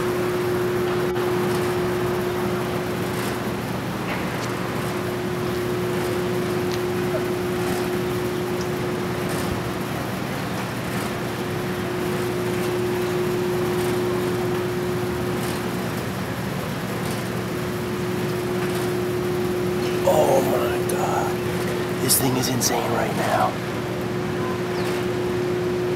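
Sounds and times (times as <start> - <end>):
steady machine hum: 4.6 - 10.4, 11.3 - 25.9.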